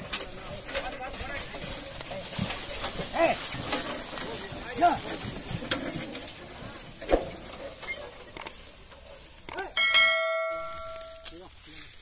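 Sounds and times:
dry leaves crackling underfoot: 0:00.0 - 0:09.6, 0:10.2 - 0:12.0
bell-like chime: 0:09.8 - 0:11.3.

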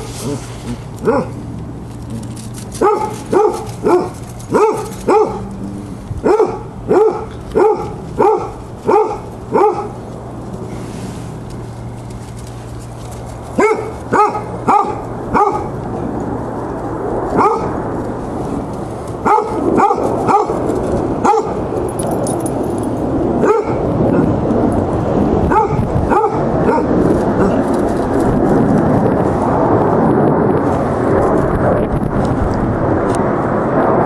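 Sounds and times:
hound dogs barking: 0:00.0 - 0:01.5, 0:02.7 - 0:05.6, 0:06.2 - 0:10.0, 0:13.5 - 0:15.8, 0:17.3 - 0:17.9, 0:19.2 - 0:21.9, 0:23.4 - 0:24.4, 0:25.5 - 0:27.6
rushing noise: 0:00.0 - 0:34.0.

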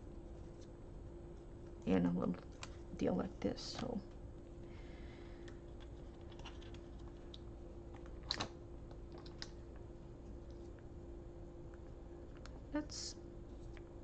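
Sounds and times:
clicks and cellophane crinkles: 0:05.4 - 0:09.6.

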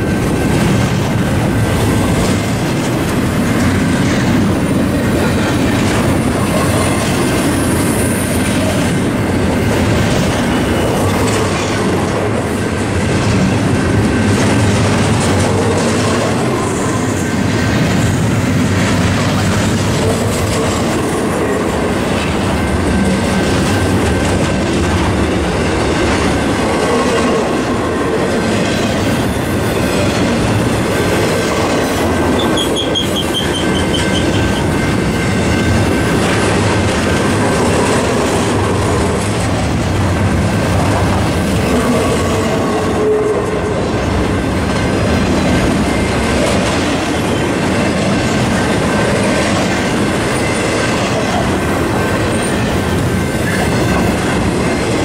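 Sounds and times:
freight train rumbling past: 0:00.0 - 0:55.0
brief high squeal: 0:32.4 - 0:34.5.

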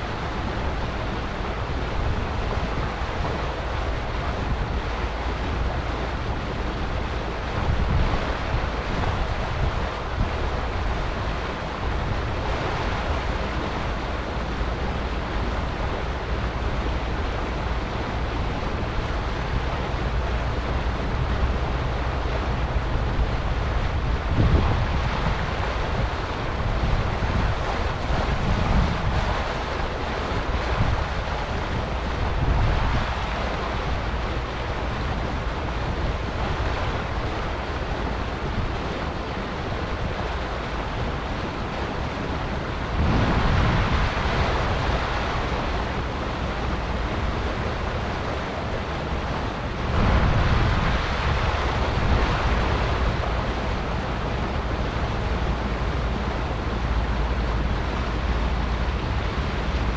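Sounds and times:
water rushing along boat hull: 0:00.0 - 0:59.9
wind buffeting microphone: 0:00.0 - 0:59.9.

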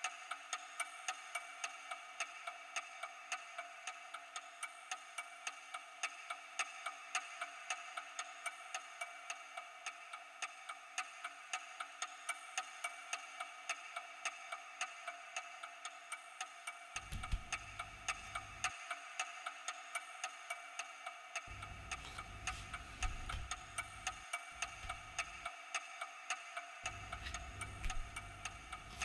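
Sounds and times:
clock ticking: 0:12.6 - 0:29.0
faint constant hum: 0:21.5 - 0:25.5, 0:26.8 - 0:29.0.

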